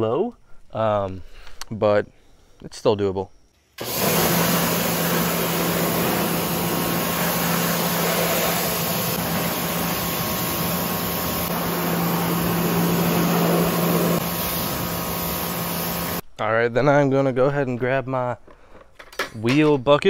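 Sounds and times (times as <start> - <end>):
motor hum: 3.8 - 16.2
pressure washer spraying water: 3.8 - 16.2.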